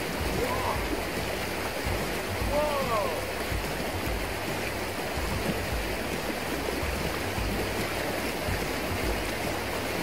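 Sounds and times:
river rushing over stones: 0:00.0 - 0:10.0.

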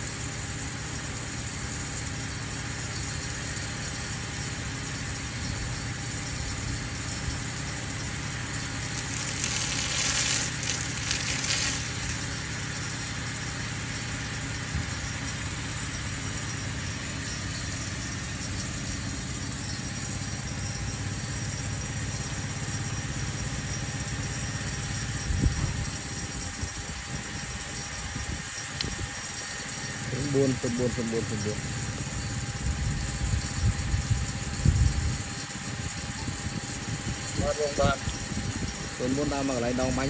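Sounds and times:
irrigation pump engine hum: 0:00.0 - 0:40.0
sprinkler water jet hissing: 0:07.0 - 0:15.8.

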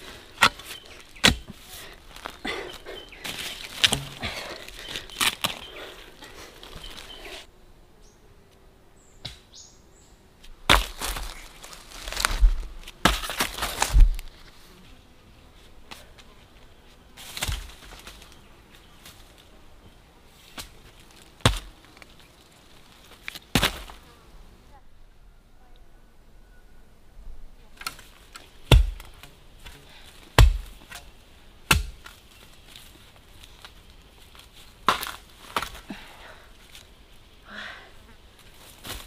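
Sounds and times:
bamboo shoots landing on a pile: 0:23.2 - 0:24.0.

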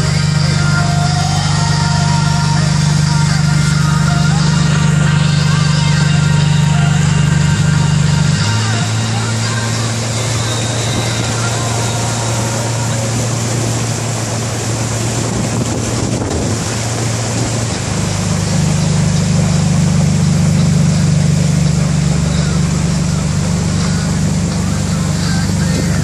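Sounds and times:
motorboat engine running: 0:00.0 - 0:26.0
water noise: 0:00.0 - 0:26.0
wind noise: 0:15.0 - 0:17.9.

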